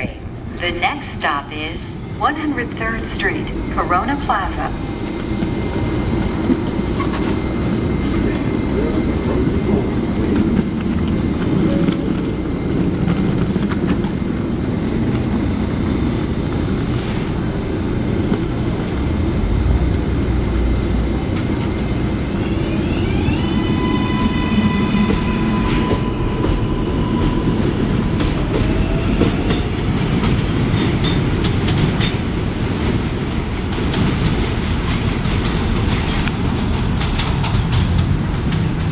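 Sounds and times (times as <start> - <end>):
subway train rumble: 0.0 - 38.9
traction motors whining: 17.4 - 29.8.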